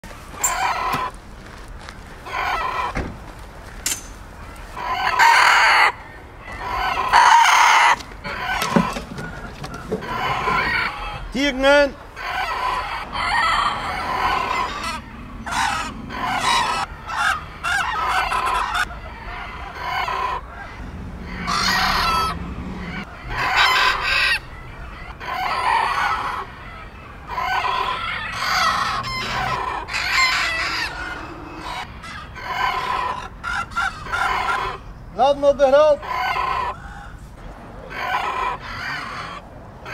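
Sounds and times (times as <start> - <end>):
roosters crowing: 0.1 - 39.9.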